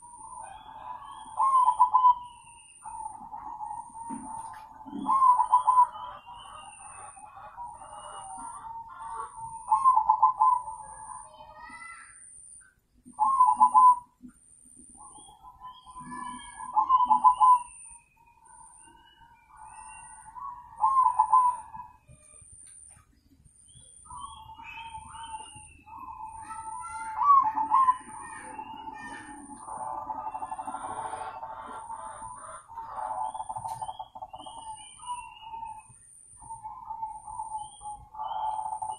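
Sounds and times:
dove stuttering coo: 0:00.0 - 0:11.1, 0:13.2 - 0:14.1, 0:15.0 - 0:17.8, 0:18.4 - 0:22.2, 0:24.1 - 0:38.9
soft cooing doves: 0:00.0 - 0:11.8, 0:13.1 - 0:38.9
thin bird chirps: 0:09.6 - 0:31.9.

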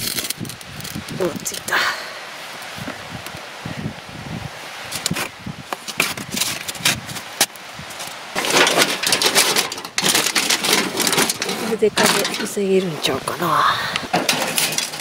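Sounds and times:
foil crinkling: 0:00.0 - 0:01.6.

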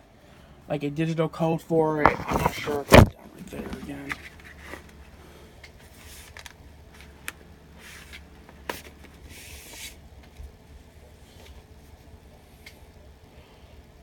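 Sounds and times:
low steady hum: 0:00.0 - 0:14.0
rustling of record sleeves: 0:02.0 - 0:05.0, 0:05.7 - 0:10.4.

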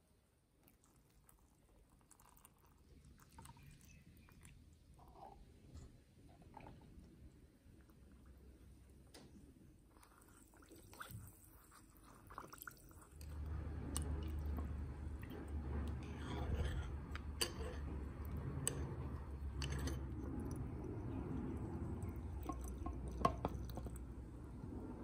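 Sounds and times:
low steady hum: 0:01.6 - 0:25.0
liquid sloshing in jar: 0:09.9 - 0:24.2.

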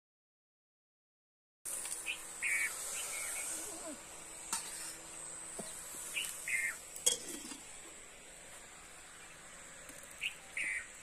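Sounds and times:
high-pitched insect drone: 0:01.8 - 0:05.3
bird chirps: 0:02.0 - 0:03.9, 0:05.7 - 0:06.8, 0:10.1 - 0:11.0.

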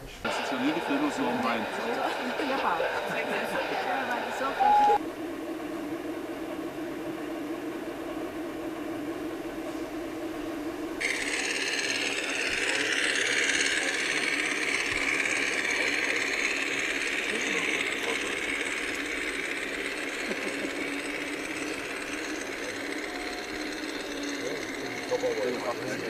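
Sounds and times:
model train whirring rattle: 0:00.2 - 0:05.0, 0:10.9 - 0:26.0.

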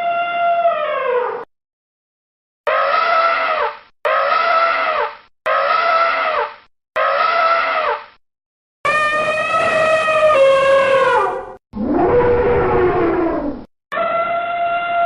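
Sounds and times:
high squealing call: 0:02.7 - 0:08.1.

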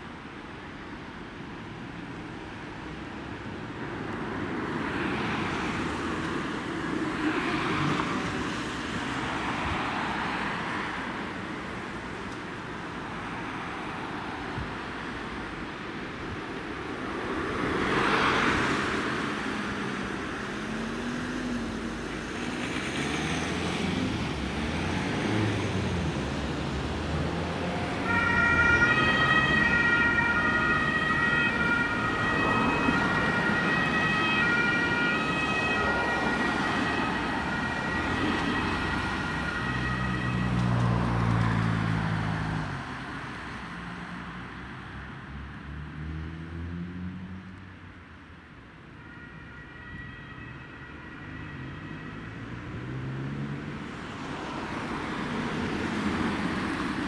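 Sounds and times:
road traffic noise: 0:00.0 - 0:57.0
ambulance two-tone siren: 0:27.6 - 0:41.4, 0:49.0 - 0:53.1.

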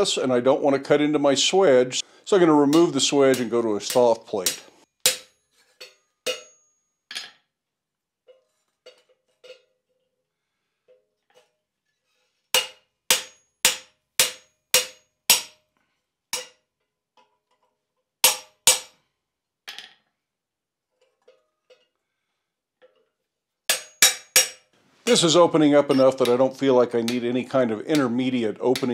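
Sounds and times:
hammer striking chisel on metal: 0:02.6 - 0:06.8, 0:12.6 - 0:15.6, 0:16.3 - 0:16.7, 0:18.2 - 0:19.0, 0:23.7 - 0:24.7, 0:25.9 - 0:28.9.

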